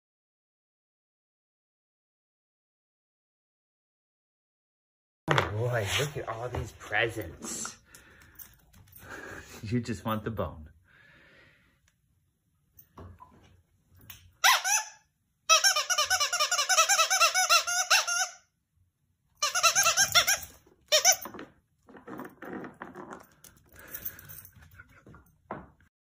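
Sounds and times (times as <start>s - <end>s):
squeaky dog toy squeaking: 14.4s - 18.5s, 19.4s - 21.5s.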